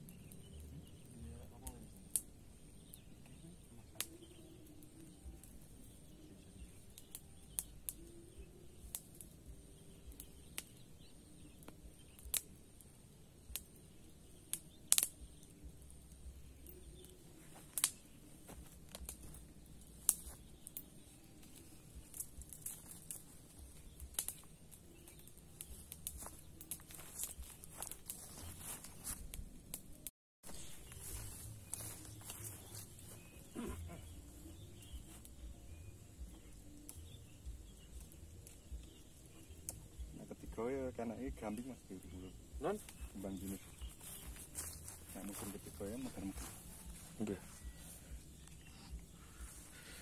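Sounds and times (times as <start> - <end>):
sharp clicks and snaps: 11.6 - 12.6, 14.5 - 18.0, 18.6 - 30.1, 37.9 - 38.9.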